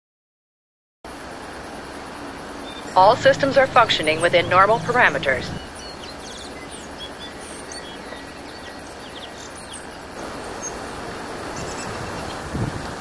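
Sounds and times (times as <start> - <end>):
outdoor background noise: 1.1 - 13.0.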